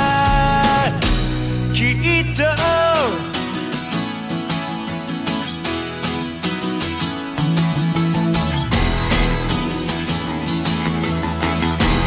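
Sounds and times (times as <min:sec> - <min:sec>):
man singing: 0:00.0 - 0:03.8
pop-rock band with drums: 0:00.0 - 0:12.0.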